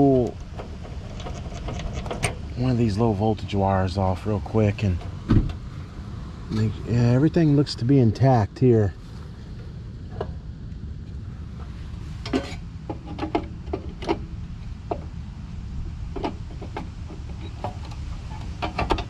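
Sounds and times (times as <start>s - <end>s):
compressor humming: 0.0s - 19.0s.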